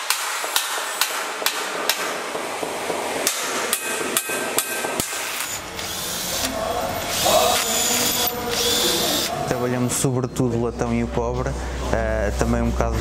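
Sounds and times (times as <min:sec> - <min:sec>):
hammer striking metal: 0:00.0 - 0:05.7
cordless drill whirring: 0:05.2 - 0:09.4.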